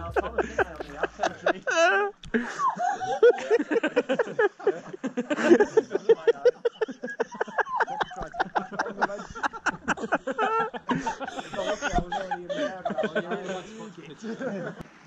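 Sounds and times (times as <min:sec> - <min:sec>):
people talking: 0:00.0 - 0:02.1, 0:04.0 - 0:07.0, 0:07.6 - 0:10.2, 0:10.9 - 0:14.8
people laughing: 0:00.0 - 0:14.8.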